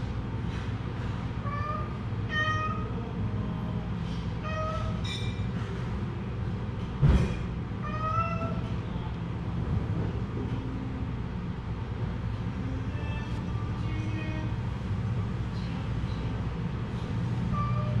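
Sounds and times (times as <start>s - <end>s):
steady low hum: 0.0s - 18.0s
cats meowing: 1.4s - 3.0s, 4.4s - 5.0s, 7.8s - 8.7s, 17.5s - 18.0s.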